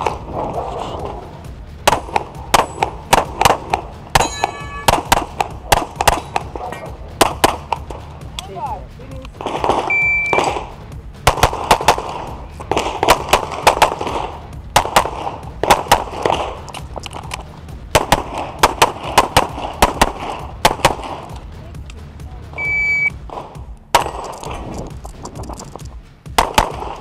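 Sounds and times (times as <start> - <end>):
rapid pistol shots: 1.8 - 8.1, 9.4 - 21.4, 23.2 - 24.8, 26.3 - 27.0
shot timer beep: 9.9 - 10.5, 22.6 - 23.2.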